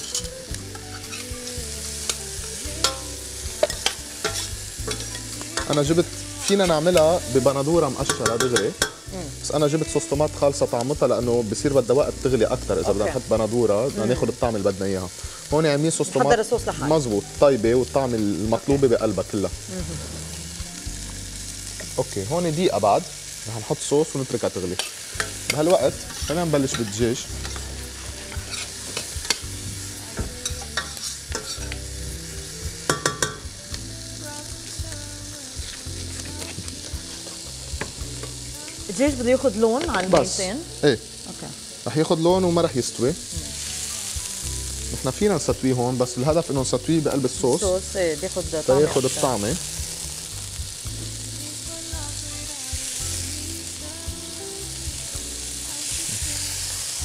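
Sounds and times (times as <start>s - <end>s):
vegetables sizzling in a pot: 0.0s - 57.0s
metal spoon scraping a pot: 3.6s - 7.1s, 26.2s - 29.5s.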